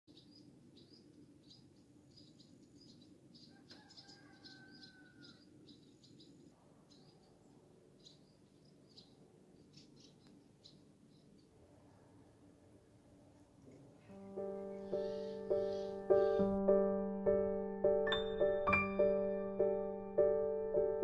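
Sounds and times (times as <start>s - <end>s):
small birds chirping: 0.1s - 12.4s, 13.6s - 16.6s.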